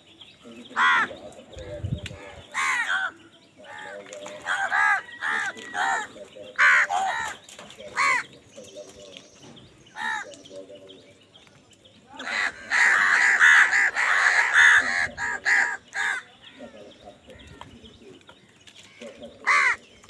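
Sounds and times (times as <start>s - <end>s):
crows cawing: 0.6s - 1.4s, 2.1s - 8.4s, 9.9s - 10.5s, 12.2s - 17.7s, 18.8s - 20.0s.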